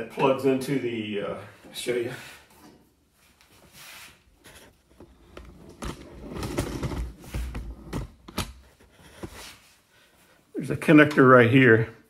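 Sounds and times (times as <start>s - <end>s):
handling rustling and scraping: 2.5s - 10.3s.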